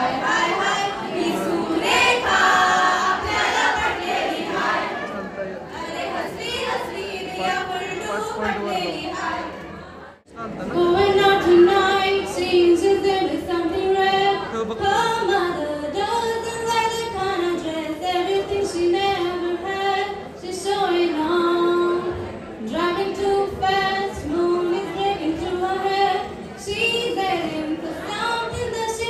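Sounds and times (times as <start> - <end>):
woman singing into microphone: 10.6 - 29.0.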